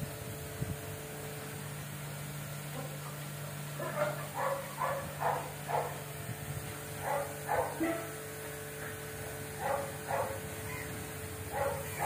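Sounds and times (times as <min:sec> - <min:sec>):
puppy barking: 0:03.8 - 0:06.0, 0:07.0 - 0:08.1, 0:09.6 - 0:10.8, 0:11.5 - 0:12.0.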